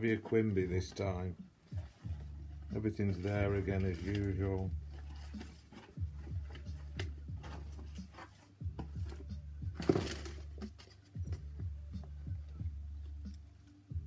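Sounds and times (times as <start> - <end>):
paper rustling: 1.8 - 11.2
paper crinkling: 2.7 - 11.2.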